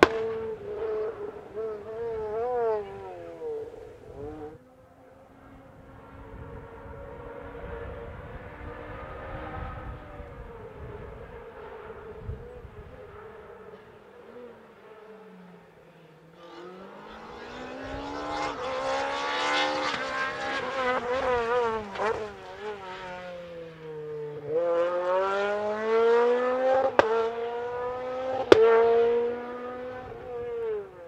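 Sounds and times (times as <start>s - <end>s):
sharp cracks: 0.0s - 0.6s
rally car engine revving: 0.0s - 4.6s, 16.0s - 31.0s.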